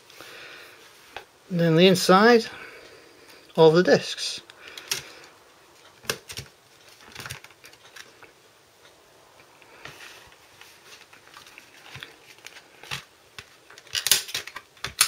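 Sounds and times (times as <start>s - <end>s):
soft rustle: 0.0s - 2.4s, 6.6s - 13.8s
plastic dvd case clicks: 12.0s - 15.0s.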